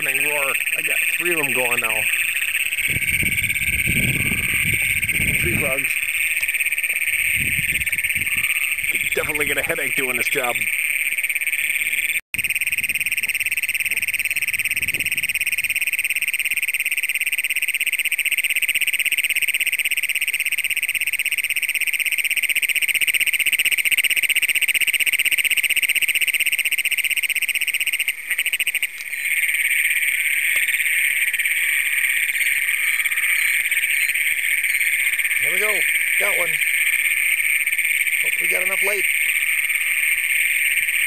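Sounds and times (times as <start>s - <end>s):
toads chorus of buzzing trills: 0.0s - 41.0s.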